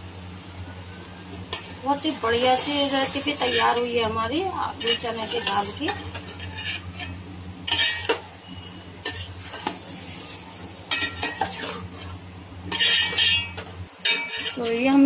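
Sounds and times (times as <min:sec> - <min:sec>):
metal ladle scraping a pot: 0:02.9 - 0:03.9, 0:04.6 - 0:09.8, 0:10.9 - 0:14.8.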